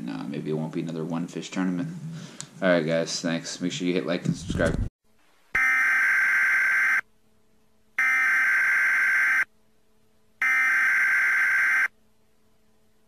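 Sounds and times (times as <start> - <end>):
electronic buzzer tone: 5.6 - 7.0, 8.0 - 9.5, 10.4 - 11.9.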